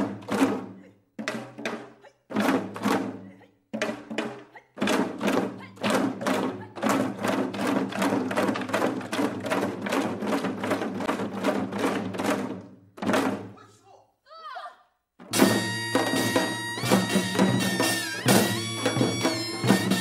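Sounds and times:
sharp drum strikes: 15.2s - 20.0s.

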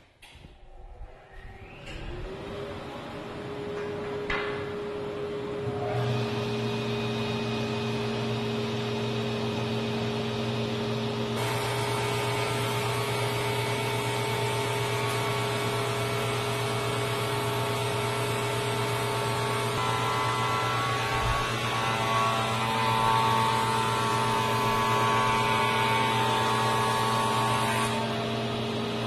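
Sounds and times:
planer moulder running: 1.6s - 29.0s.

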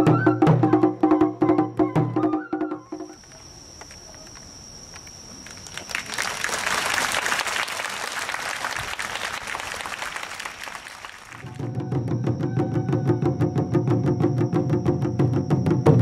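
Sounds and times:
audience applauding: 5.5s - 11.6s.

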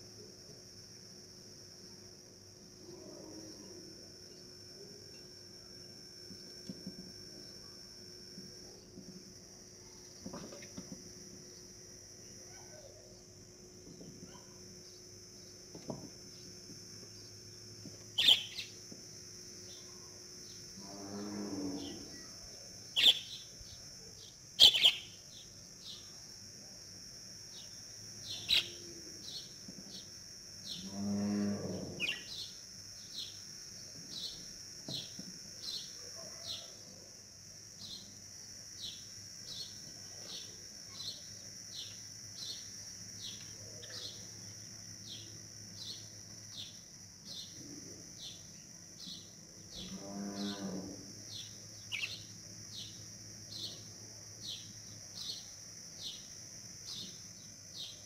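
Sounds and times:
steady high-pitched buzz: 0.0s - 58.0s
bird chirping: 18.2s - 18.8s, 23.0s - 23.5s, 24.6s - 25.2s, 32.0s - 32.5s, 51.4s - 53.0s
cow mooing: 20.8s - 22.1s, 30.8s - 32.0s, 49.9s - 51.0s.

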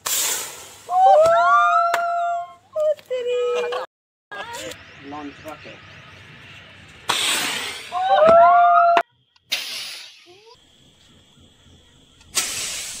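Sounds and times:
firework rocket whooshing launch: 0.0s - 1.2s, 7.0s - 8.1s, 9.5s - 10.4s, 12.3s - 13.0s
rising rocket whistles: 7.1s - 10.6s.

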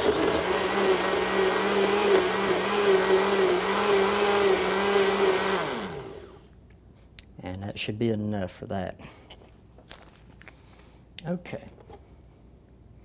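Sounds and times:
blender running: 0.0s - 6.4s.

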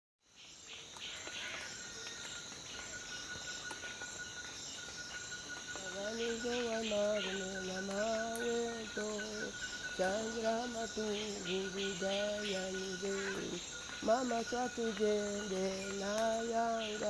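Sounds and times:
crickets and insects trilling: 0.3s - 17.0s
small chirps: 0.8s - 17.0s
person singing long notes: 5.8s - 17.0s.

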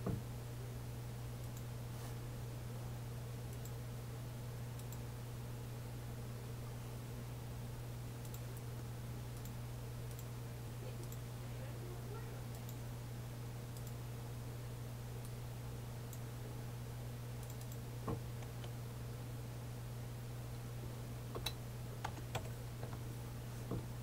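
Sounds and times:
steady low hum: 0.0s - 24.0s
faint mouse clicks: 3.5s - 3.8s, 4.8s - 5.0s, 8.2s - 10.3s, 12.5s - 12.8s, 13.8s - 14.0s, 17.4s - 17.8s.

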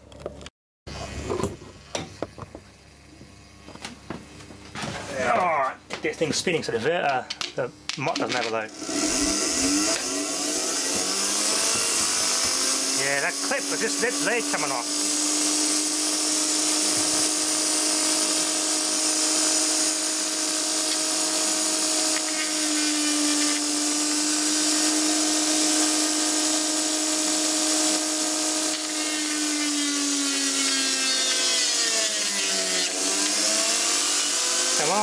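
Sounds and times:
motor brushes sparking: 8.0s - 35.0s
small electric motor whining: 8.6s - 35.0s.

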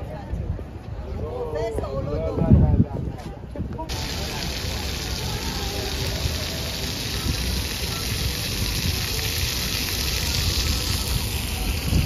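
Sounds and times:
fountain water splashing on paving: 3.9s - 12.0s.

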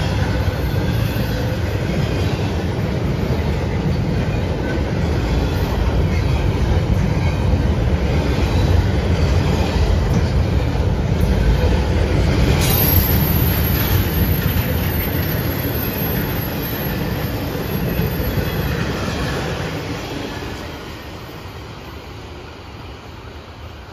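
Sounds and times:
train wheels rumbling on rails: 0.0s - 23.9s
high-pitched wheel squeal: 12.6s - 18.9s.

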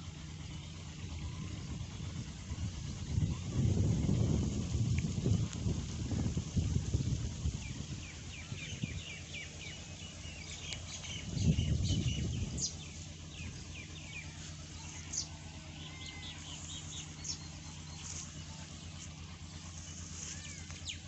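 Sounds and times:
loud low rumble: 0.0s - 21.0s
steady low hum: 0.0s - 21.0s
small birds chirping: 0.4s - 21.0s.

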